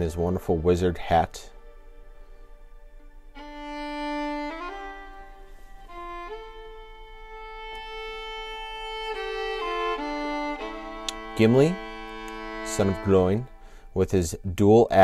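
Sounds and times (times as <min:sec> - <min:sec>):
slow melody of long notes: 0:00.0 - 0:14.6.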